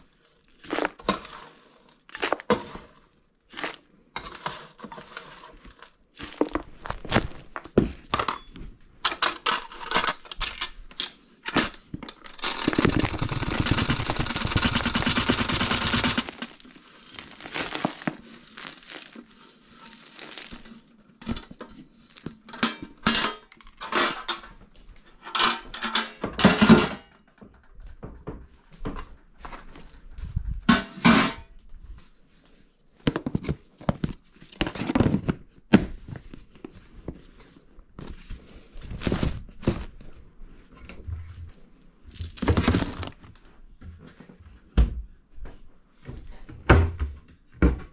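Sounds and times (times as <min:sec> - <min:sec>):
spatula stirring oat flakes: 0:00.0 - 0:07.0, 0:12.3 - 0:22.4
containers knocking and scraping: 0:11.5 - 0:21.8
oats pouring into plastic container: 0:12.3 - 0:20.9.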